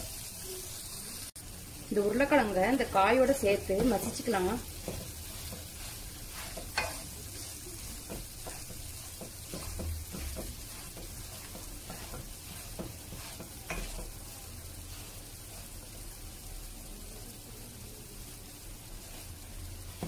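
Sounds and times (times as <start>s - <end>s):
spatula scraping wok: 0.0s - 16.8s, 18.3s - 20.0s
frying sizzle: 0.0s - 20.0s
spatula tapping pan: 2.8s - 16.0s, 19.8s - 20.0s.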